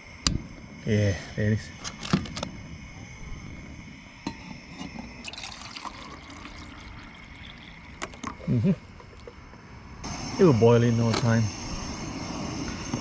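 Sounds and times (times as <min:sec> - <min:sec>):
water pouring into metal mug: 0:05.2 - 0:09.4.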